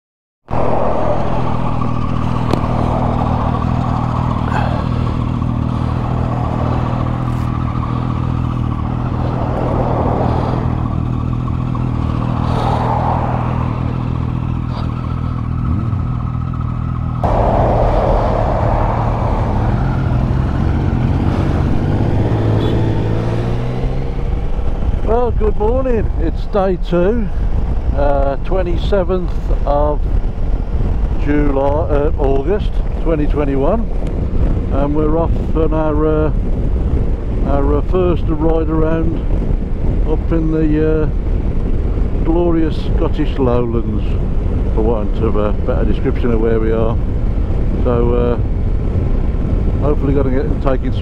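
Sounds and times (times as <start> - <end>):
motorcycle engine running: 0.5 - 51.0.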